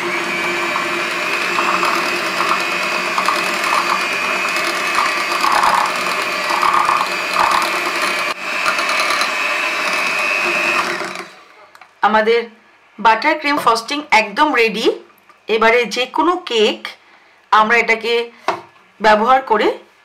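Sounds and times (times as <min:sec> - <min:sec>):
electric hand mixer whining: 0:00.0 - 0:11.6.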